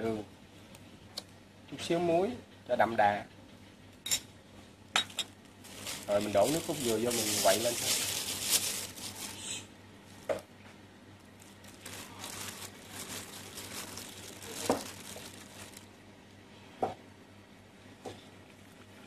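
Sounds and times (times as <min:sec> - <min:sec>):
plastic glove crinkling: 0:05.0 - 0:10.4, 0:11.2 - 0:16.0.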